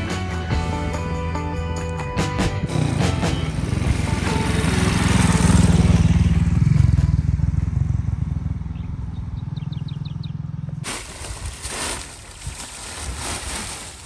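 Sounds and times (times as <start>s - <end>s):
motorcycle engine rumble passing: 2.6s - 13.8s.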